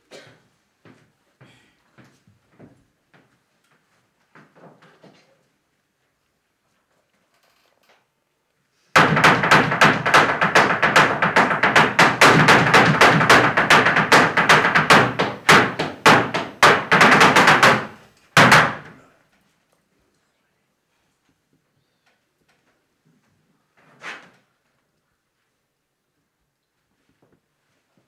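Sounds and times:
rapid sharp cracks: 9.0 - 19.0.

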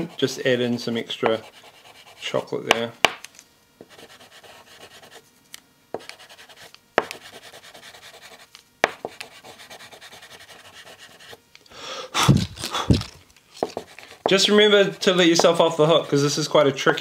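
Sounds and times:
chocolate rubbing on paper: 1.2 - 2.4, 3.8 - 5.2, 6.0 - 11.4, 12.3 - 16.5.

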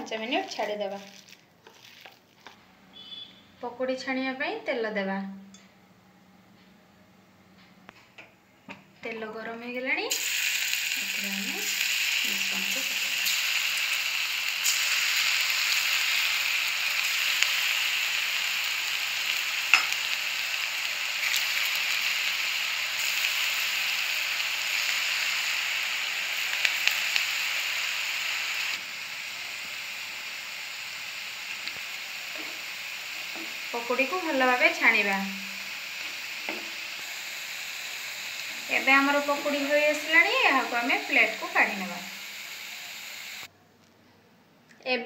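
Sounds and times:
fritters sizzling in hot oil: 0.0 - 3.2, 10.1 - 43.5
oil popping: 0.6 - 2.6.

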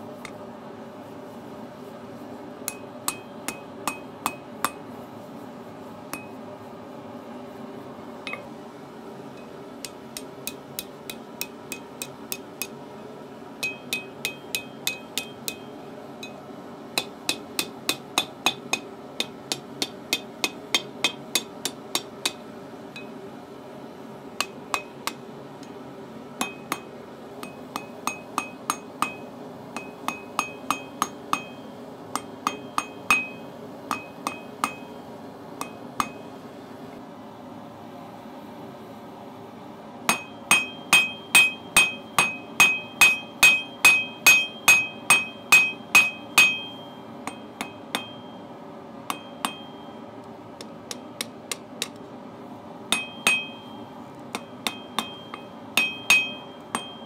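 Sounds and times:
hammer striking steel on anvil: 2.6 - 4.8, 6.1 - 6.4, 9.4 - 12.8, 13.6 - 16.4, 17.0 - 22.4, 24.4 - 25.2, 26.4 - 35.0, 35.6 - 36.4, 40.1 - 48.4, 49.1 - 50.0, 52.9 - 57.0.

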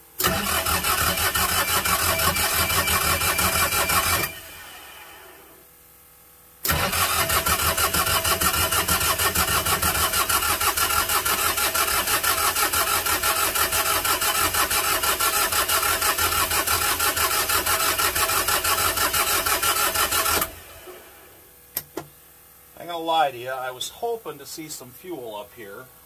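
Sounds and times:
starter motor cranking: 0.2 - 5.3, 6.6 - 20.6.

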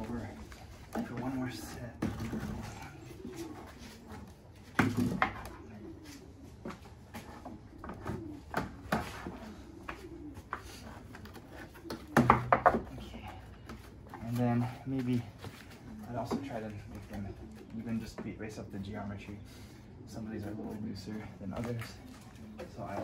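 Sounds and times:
wooden dowels knocking: 12.0 - 13.0.

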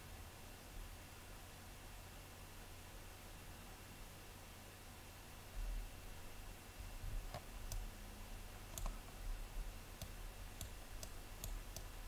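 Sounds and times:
faint low hum: 0.0 - 12.0
computer mouse clicking: 7.2 - 7.9, 8.6 - 9.2, 10.0 - 12.0.

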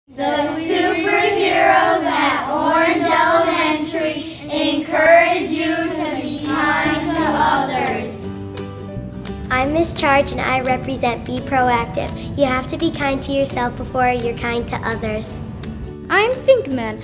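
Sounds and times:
children singing in unison: 0.1 - 8.4.

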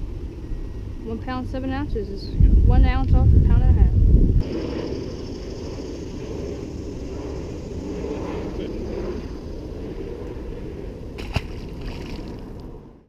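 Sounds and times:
wind rumble on microphone: 0.0 - 13.0
fish splashing into water: 11.2 - 12.6.

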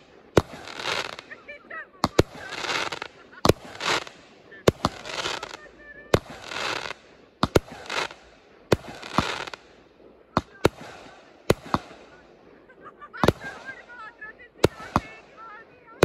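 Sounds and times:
firework hiss: 0.0 - 1.4, 2.0 - 12.3
fireworks bursting: 0.0 - 16.0.

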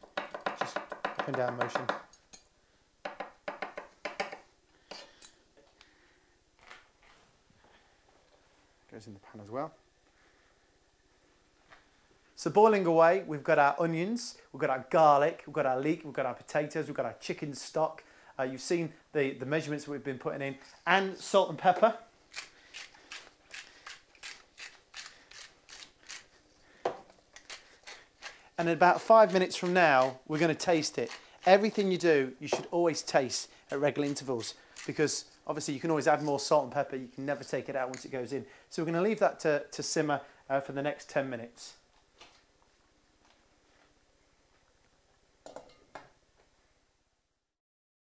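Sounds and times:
knife chopping on wooden board: 0.0 - 2.0.

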